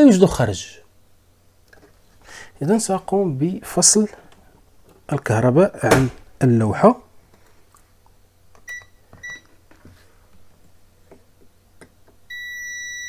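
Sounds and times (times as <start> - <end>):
continuity buzzer steady tone: 12.2 - 13.0
multimeter short high beeps: 12.3 - 13.0.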